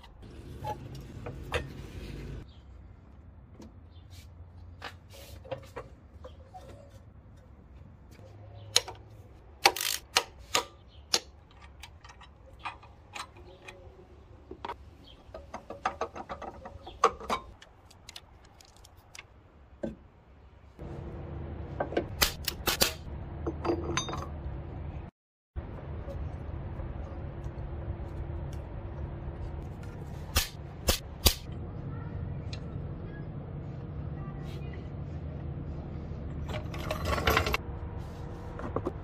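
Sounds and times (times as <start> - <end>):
metal tools clicking on bolts: 9.6 - 14.0
steady low hum: 20.8 - 39.0.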